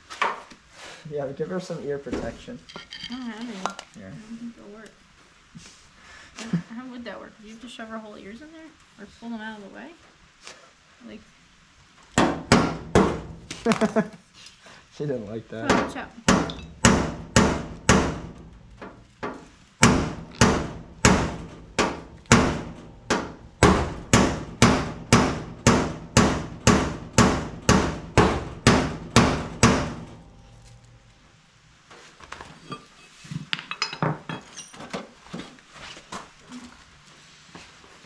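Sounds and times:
hammer striking sheet metal: 15.7 - 18.4, 19.8 - 30.2.

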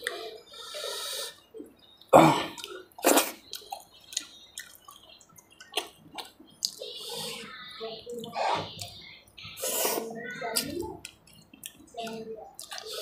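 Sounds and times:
wet eating smacks and clicks: 2.6 - 6.9, 9.9 - 13.0.

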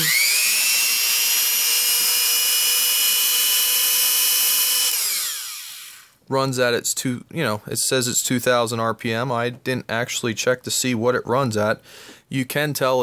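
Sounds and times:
electric drill whining: 0.0 - 6.2.

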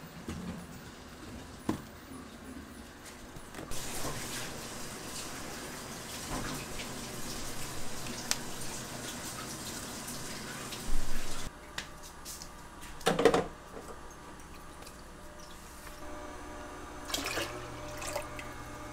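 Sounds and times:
water running from a tap: 3.7 - 11.5, 17.0 - 18.9.

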